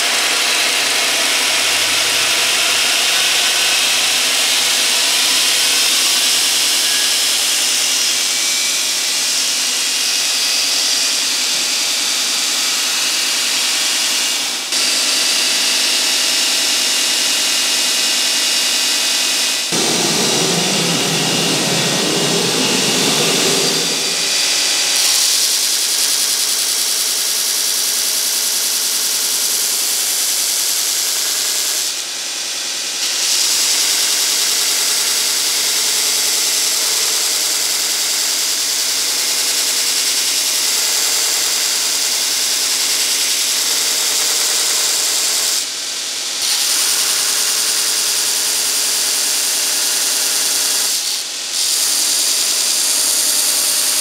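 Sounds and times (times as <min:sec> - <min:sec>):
motor hum: 0:19.7 - 0:24.8.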